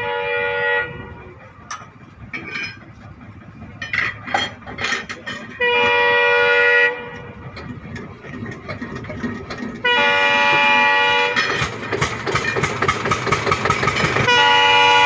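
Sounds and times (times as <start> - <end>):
train horn blast: 0.0 - 1.4, 5.4 - 7.4, 9.8 - 11.7, 14.1 - 15.0.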